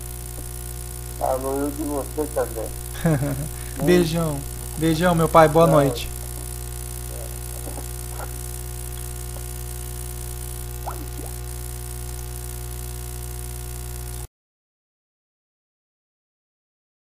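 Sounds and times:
phone line hiss: 0.0 - 12.5
electrical mains hum: 0.0 - 14.3.

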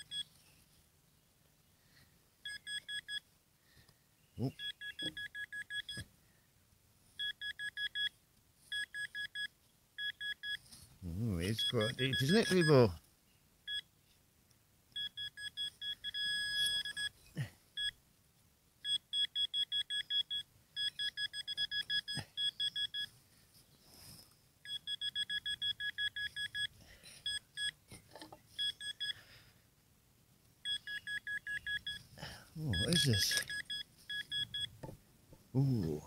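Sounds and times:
metal detector beeping: 2.5 - 3.2, 4.4 - 6.0, 7.2 - 8.1, 8.7 - 12.9, 15.0 - 17.2, 18.8 - 23.1, 24.6 - 27.8, 28.5 - 29.2, 30.6 - 34.9.

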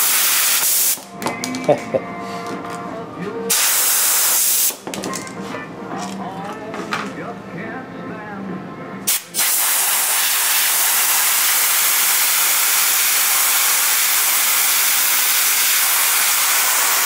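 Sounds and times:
compressed air blow gun hissing: 3.5 - 4.8, 9.1 - 17.0.

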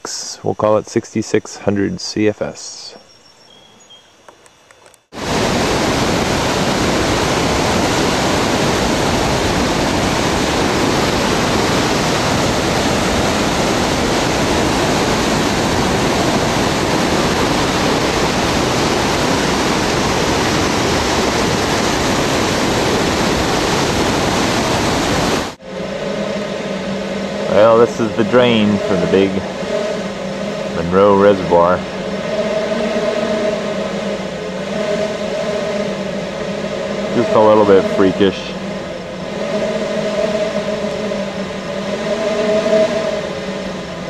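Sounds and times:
water rushing from drain: 5.2 - 25.6.

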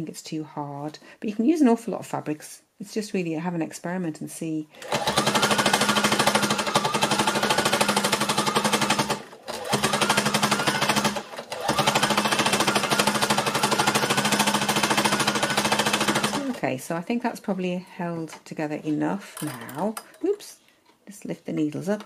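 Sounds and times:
needle-felting machine clatter: 4.8 - 16.6.

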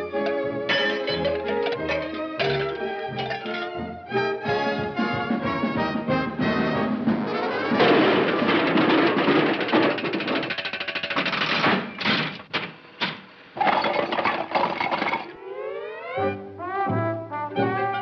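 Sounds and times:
trash tumbling and clattering: 0.0 - 4.0, 7.2 - 15.4
cartoon orchestral music: 0.0 - 8.0, 15.4 - 18.0.

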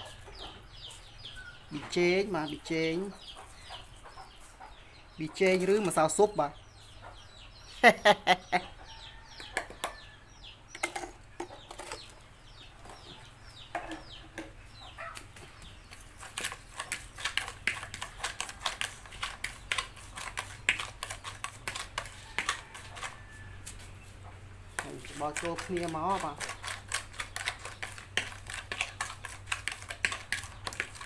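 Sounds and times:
metal spoon scraping plastic bowl: 15.2 - 23.9, 24.8 - 31.0.

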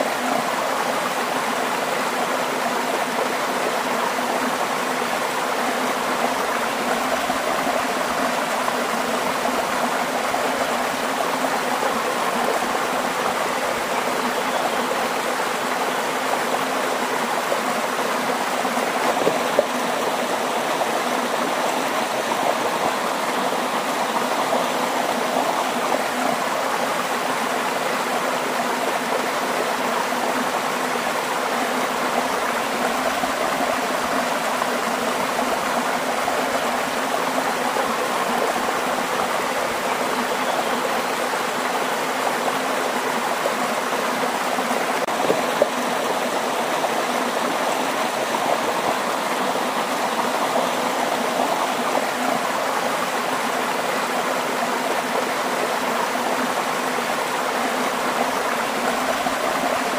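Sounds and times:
water rushing: 0.0 - 59.9.

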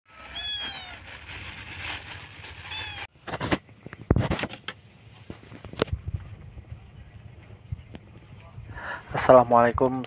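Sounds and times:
cat meows: 0.1 - 1.2, 2.6 - 3.1.

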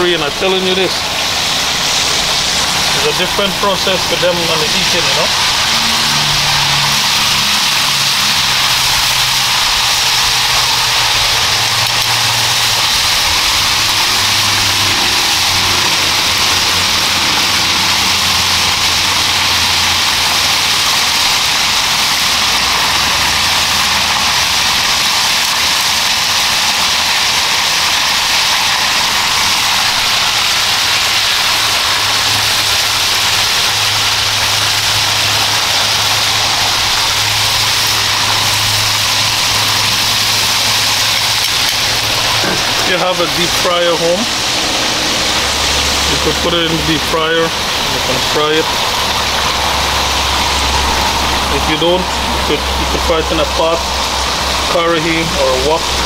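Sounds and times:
chicken sizzling in hot oil: 0.0 - 56.0.

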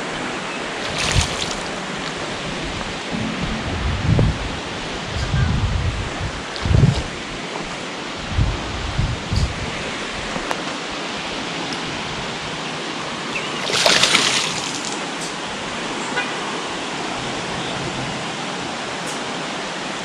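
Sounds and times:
water rushing: 0.7 - 5.1, 12.7 - 15.2.

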